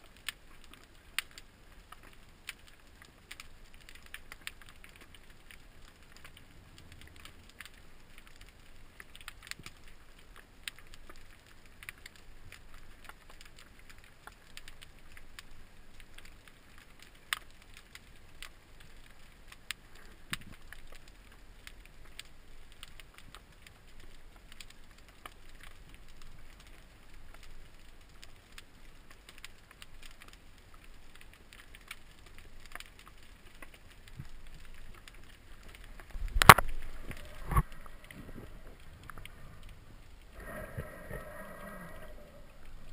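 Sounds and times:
sharp underwater clicks: 0.0s - 42.9s
low underwater rumble: 35.5s - 42.9s.

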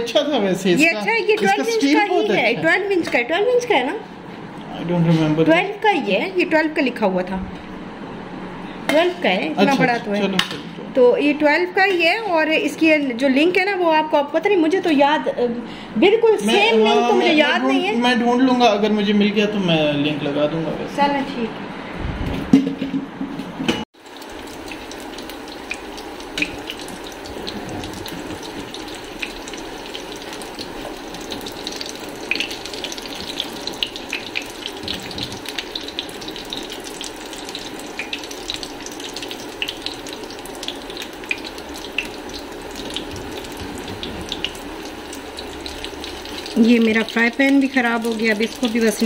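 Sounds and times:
food sizzling in hot oil: 24.0s - 49.0s.

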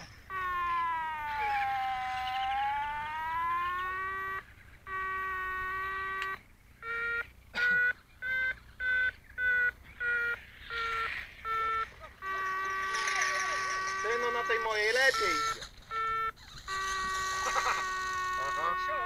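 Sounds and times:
short electronic beeps: 3.8s - 19.0s.

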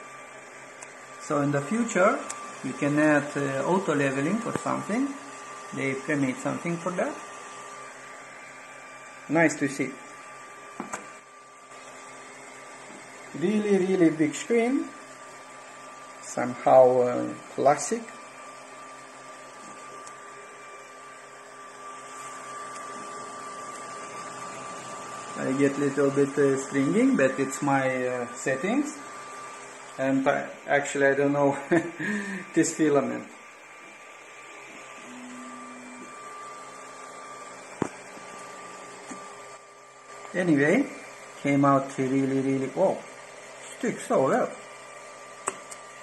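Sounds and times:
high tone from fans and motors: 0.0s - 46.0s
three d printer humming: 0.0s - 46.0s
sharp click: 45.4s - 45.8s.

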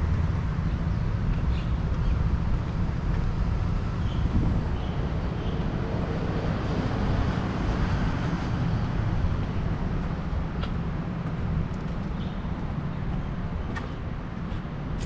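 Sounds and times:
faint street noise: 0.0s - 15.0s
wind buffeting microphone: 0.0s - 15.0s.

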